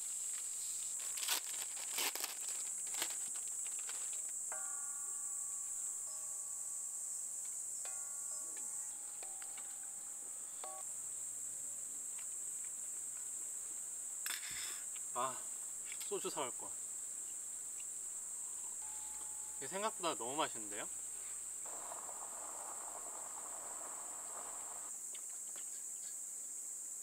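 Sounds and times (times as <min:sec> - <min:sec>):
insects chorus: 0:00.0 - 0:27.0
soft held tones: 0:04.5 - 0:11.0, 0:17.8 - 0:24.9.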